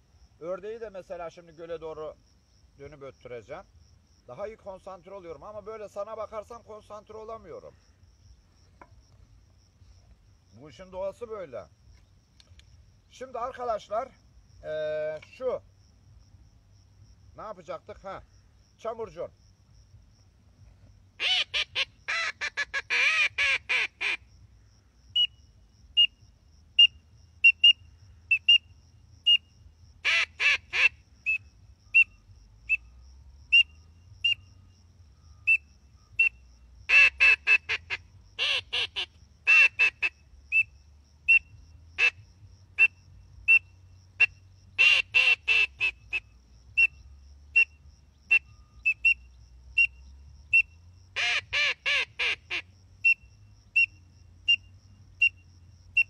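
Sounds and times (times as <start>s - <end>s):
duck call quacking: 21.2s - 24.2s, 30.0s - 31.0s, 36.9s - 40.1s, 44.2s - 46.2s, 51.2s - 52.6s.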